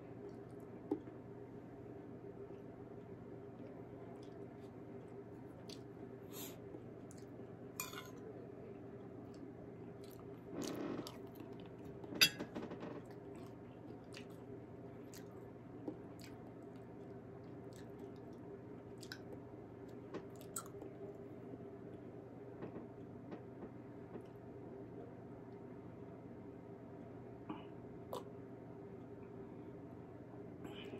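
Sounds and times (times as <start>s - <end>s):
person chewing food: 3.6s - 8.1s, 13.1s - 20.9s.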